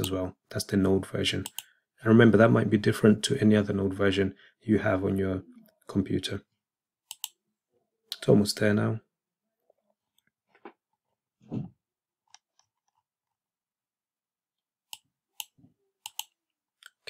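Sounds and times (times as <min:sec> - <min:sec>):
computer mouse clicks: 0:01.4 - 0:01.7, 0:07.1 - 0:07.4, 0:14.9 - 0:17.0.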